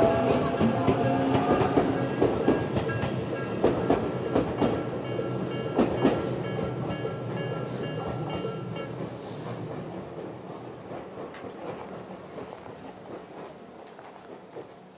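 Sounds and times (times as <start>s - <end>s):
level crossing warning bell: 0.0s - 9.1s
train wheels clicking over rail joints: 0.0s - 14.9s.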